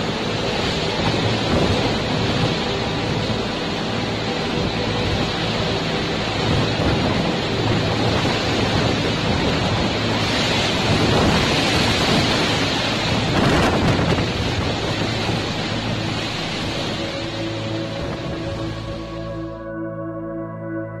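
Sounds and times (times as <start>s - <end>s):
heavy rain: 0.0s - 19.5s
strong wind: 0.0s - 21.0s.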